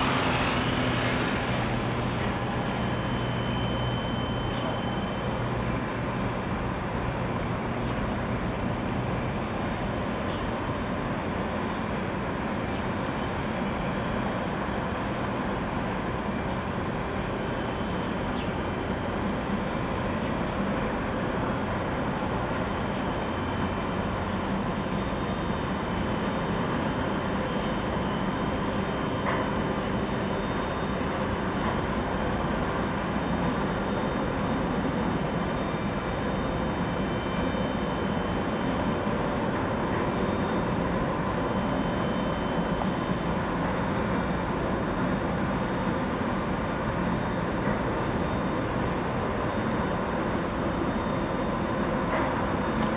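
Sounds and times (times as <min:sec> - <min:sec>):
ship engine rumbling hum: 0:00.0 - 0:52.9.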